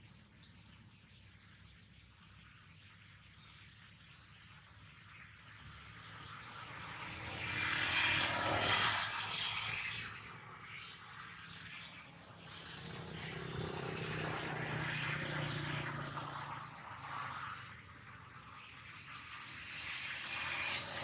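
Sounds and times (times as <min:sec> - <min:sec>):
passing engine drone: 0:05.5 - 0:21.0.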